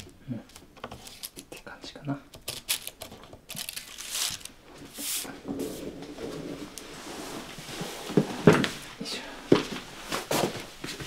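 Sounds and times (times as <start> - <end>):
paper rustling on bamboo fan: 3.5 - 7.9.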